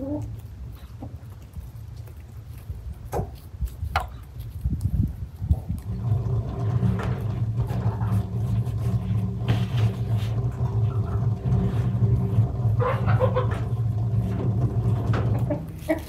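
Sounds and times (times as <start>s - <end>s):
engine humming: 5.5s - 16.0s.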